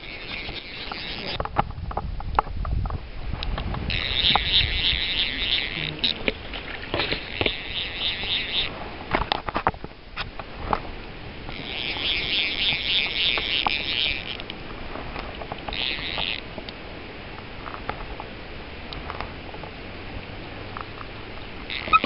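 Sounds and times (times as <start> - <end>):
fishing reel drag ratcheting: 0.0 - 1.4, 3.9 - 8.7, 11.5 - 14.5, 15.7 - 16.4, 21.7 - 22.0.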